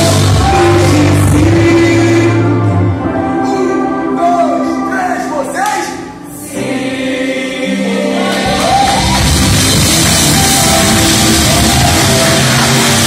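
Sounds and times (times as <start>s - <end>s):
gospel band with drums and bass: 0.0s - 4.9s, 6.8s - 13.0s
keyboard chords: 0.0s - 13.0s
voices singing: 6.3s - 8.6s.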